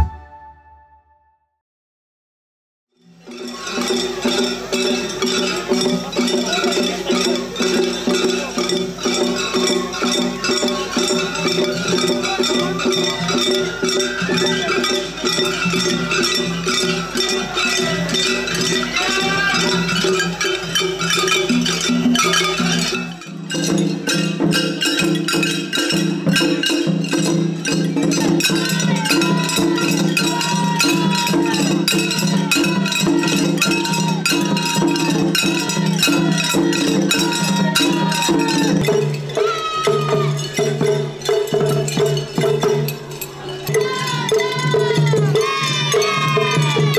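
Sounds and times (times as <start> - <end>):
festival music: 0.0 - 1.4, 3.1 - 46.9
small hand cymbals clanging: 3.0 - 46.9.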